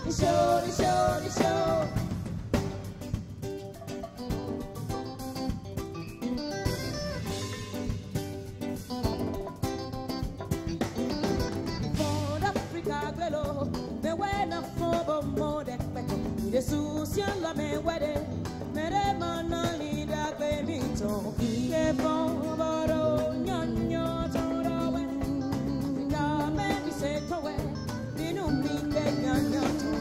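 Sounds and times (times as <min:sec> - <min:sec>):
woman singing into microphone: 0:00.0 - 0:02.2, 0:12.0 - 0:30.0
drum kit: 0:00.0 - 0:30.0
electric guitar: 0:00.0 - 0:30.0.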